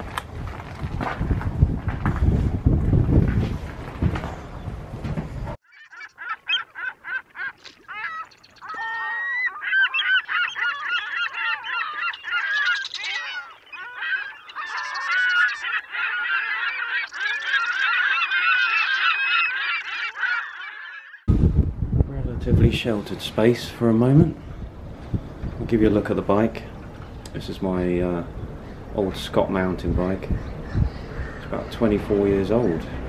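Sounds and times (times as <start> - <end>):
wind on microphone: 0.0 - 5.6, 21.3 - 26.6, 29.6 - 33.0
waterbirds calling: 5.5 - 21.3, 25.1 - 33.0.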